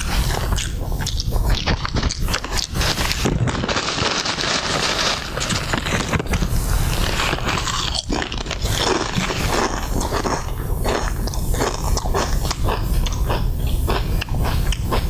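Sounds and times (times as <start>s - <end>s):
chewing crunchy chips: 0.0s - 15.0s
chip bag crinkling: 1.4s - 12.0s.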